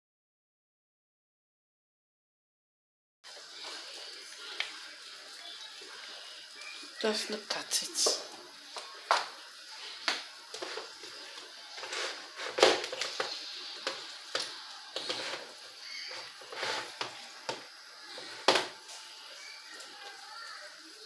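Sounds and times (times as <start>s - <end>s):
soup simmering with pops: 3.3s - 19.1s.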